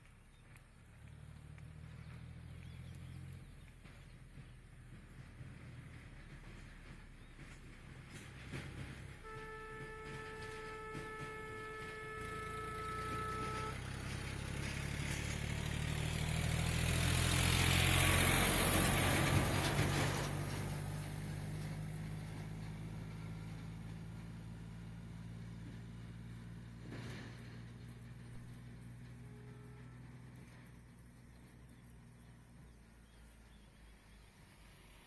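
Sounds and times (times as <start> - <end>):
vehicle engine passing by: 0.0 - 35.0
horn holding steady note: 9.2 - 14.9, 29.0 - 30.8.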